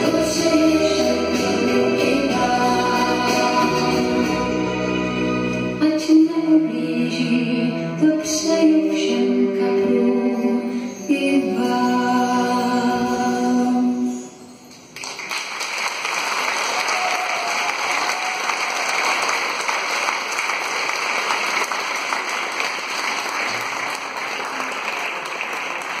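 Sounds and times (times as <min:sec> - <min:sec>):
audience applauding: 0:14.9 - 0:26.0.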